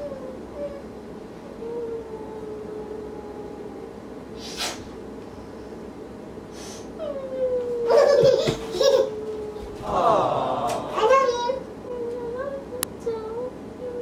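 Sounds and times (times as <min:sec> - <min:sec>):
person sniffing: 0:04.4 - 0:04.9, 0:06.5 - 0:07.0.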